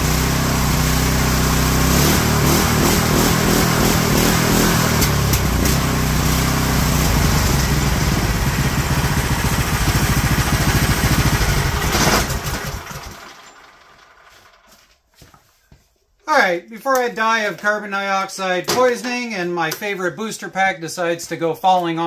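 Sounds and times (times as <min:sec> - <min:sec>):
gasoline engine running: 0:00.0 - 0:14.8.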